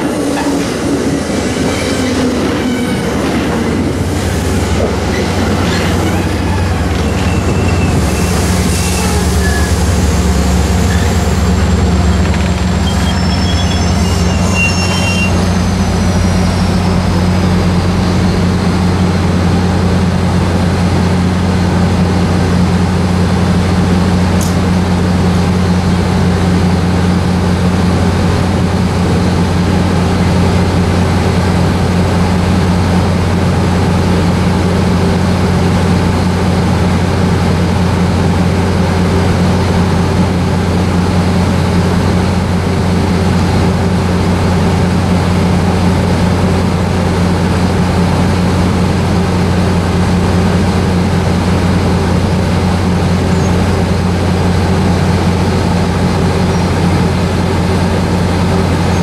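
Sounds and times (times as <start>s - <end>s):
low train hum: 0.0s - 59.0s
train cars rolling slowly: 0.0s - 59.0s
wheel brake squeals: 5.0s - 10.1s, 10.7s - 17.1s.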